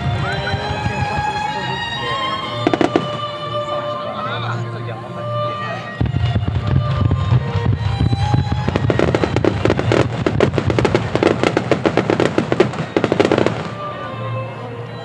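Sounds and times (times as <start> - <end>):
fireworks popping and crackling: 0.0 - 3.5, 6.0 - 13.9
music playing: 0.0 - 15.0.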